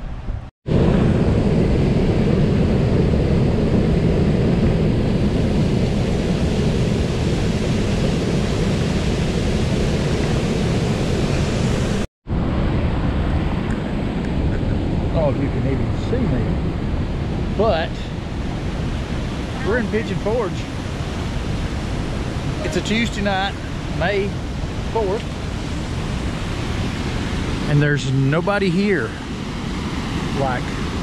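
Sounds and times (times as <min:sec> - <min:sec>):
water rushing over dam: 0:17.4 - 0:31.0.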